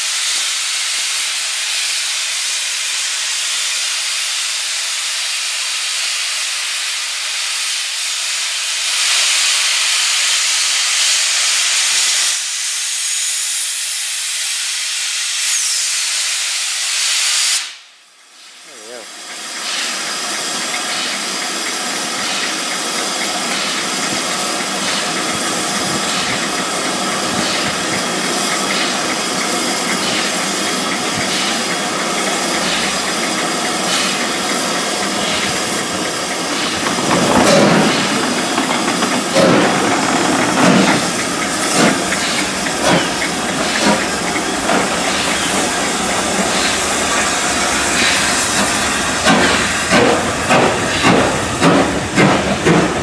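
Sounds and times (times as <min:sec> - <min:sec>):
steam hissing: 0:00.0 - 0:53.0
steam locomotive heavy beats: 0:18.7 - 0:53.0.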